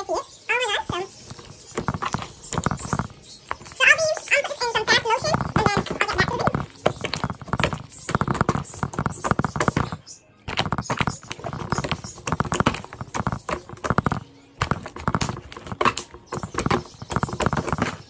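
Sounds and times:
slime squelching and popping: 0:04.8 - 0:18.0.

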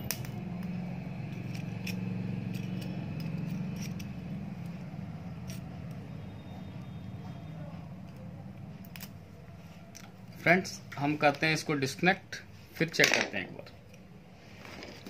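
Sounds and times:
steady low hum: 0:00.0 - 0:12.8
screwdriver scraping on metal: 0:01.4 - 0:04.2.

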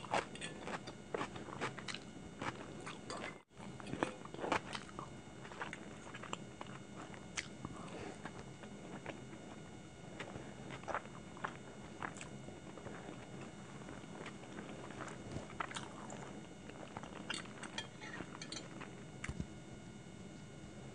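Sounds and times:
soft chewing: 0:00.0 - 0:19.6
fork clinking and scraping on plate: 0:17.7 - 0:18.7.

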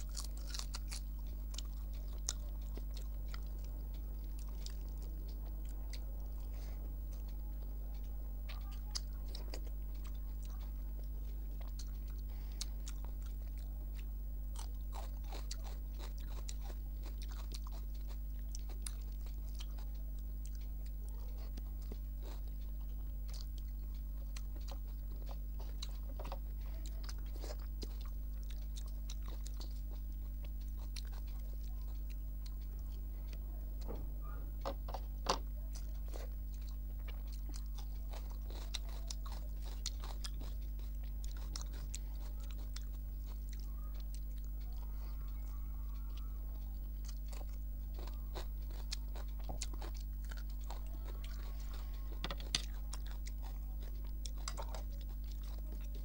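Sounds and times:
crunchy bites: 0:00.0 - 0:07.3, 0:07.9 - 0:44.6, 0:46.0 - 0:56.0
low electrical hum: 0:00.0 - 0:56.0
person chewing food: 0:00.0 - 0:56.0.

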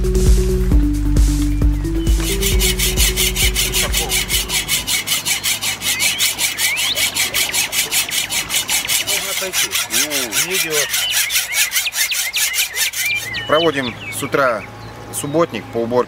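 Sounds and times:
music: 0:00.0 - 0:05.0
hacksaw cutting steel bar: 0:02.2 - 0:13.6.

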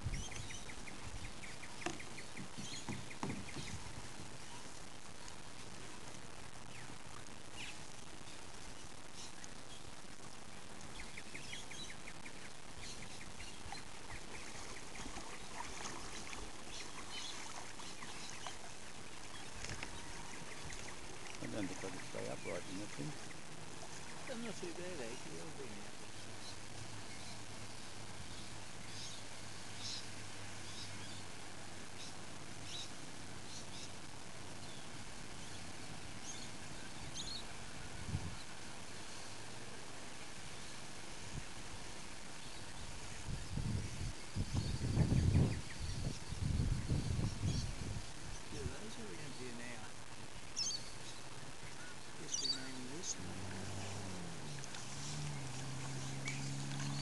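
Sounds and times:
birds chirping: 0:00.0 - 0:57.0
steady hiss: 0:00.0 - 0:57.0
paddle splashing in water: 0:00.5 - 0:04.8, 0:13.7 - 0:24.9, 0:52.6 - 0:57.0
low thump: 0:01.8 - 0:04.3.

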